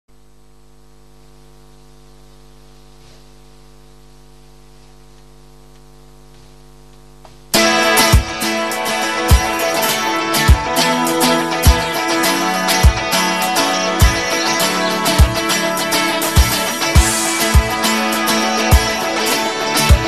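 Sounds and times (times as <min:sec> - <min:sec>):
electrical mains hum: 0:00.1 - 0:20.0
band with electric guitars: 0:07.6 - 0:20.0.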